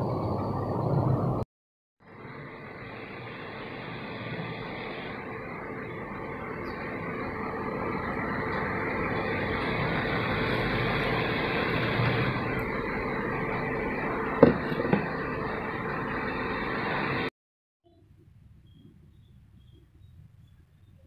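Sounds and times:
pot boiling and bubbling: 0:02.0 - 0:17.3
steady hum: 0:02.0 - 0:17.3.

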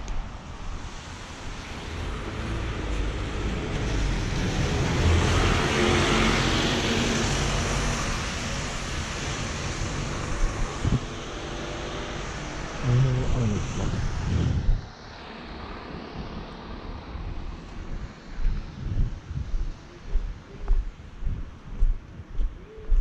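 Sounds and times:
low traffic rumble: 0:00.0 - 0:23.0
bus passing on wet road: 0:00.4 - 0:14.2.

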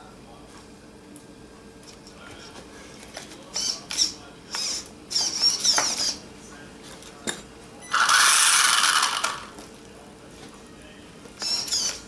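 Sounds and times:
electric motor whirring: 0:07.9 - 0:09.5.

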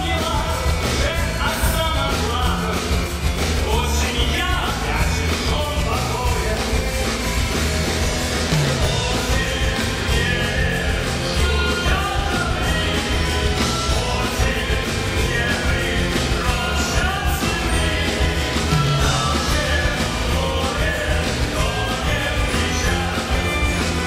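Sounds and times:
live rock band playing: 0:00.0 - 0:24.0
person singing: 0:08.8 - 0:24.0.

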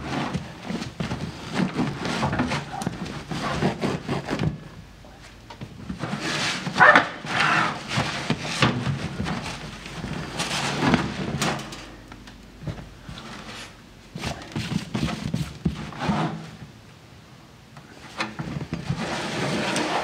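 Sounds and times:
foam rustling and crunching: 0:00.0 - 0:11.9.

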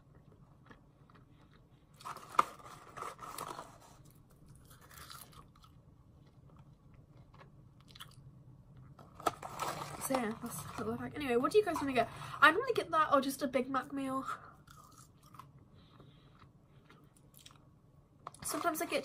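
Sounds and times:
crunchy chewing of fries: 0:00.0 - 0:10.0, 0:14.6 - 0:17.8.

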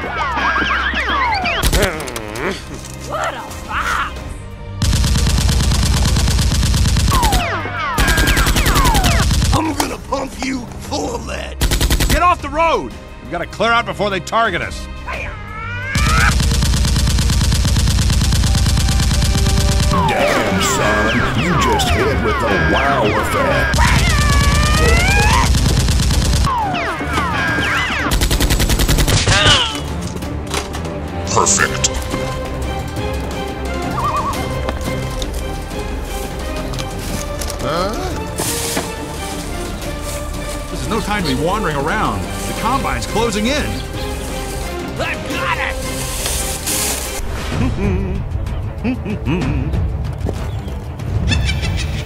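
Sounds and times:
rapid automatic gunfire: 0:04.8 - 0:09.7, 0:11.6 - 0:12.2, 0:16.0 - 0:20.0, 0:23.8 - 0:26.5, 0:28.1 - 0:29.4.

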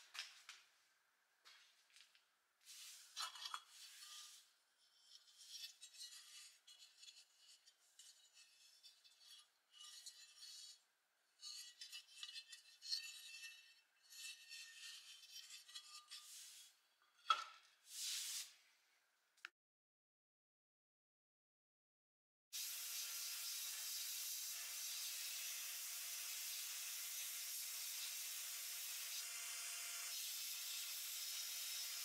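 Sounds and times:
metal scraping and clinking: 0:03.1 - 0:10.8, 0:11.4 - 0:17.5.

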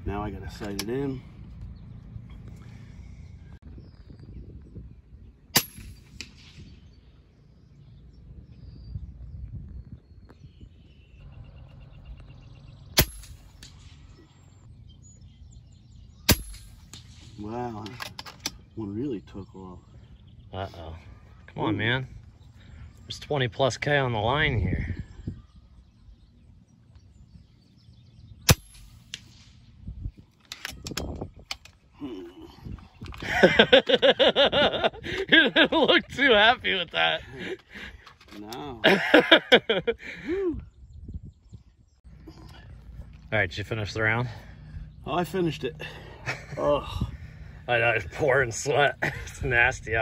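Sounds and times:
metallic clicks of rifle lever: 0:00.6 - 0:01.0, 0:16.5 - 0:18.6, 0:30.3 - 0:31.8
air rifle shot: 0:05.5 - 0:07.0, 0:12.9 - 0:14.1, 0:16.2 - 0:17.4, 0:28.4 - 0:29.7.

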